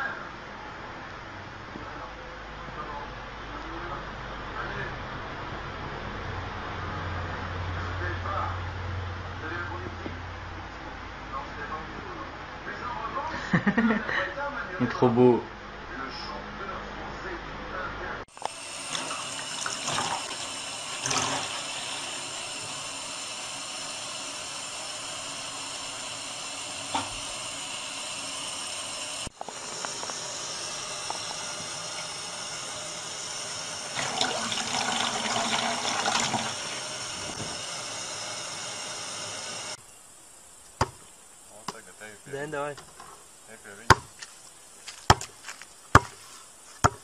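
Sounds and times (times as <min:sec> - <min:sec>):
tap water running into sink: 0:18.3 - 0:39.8.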